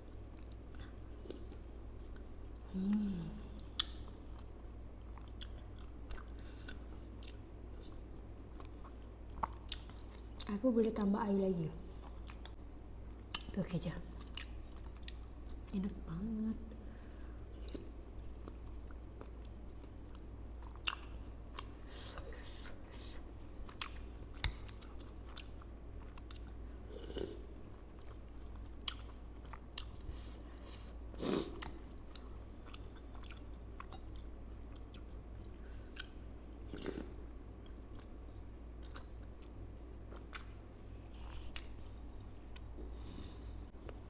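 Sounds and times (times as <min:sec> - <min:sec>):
crunchy chewing: 0:31.4 - 0:37.1.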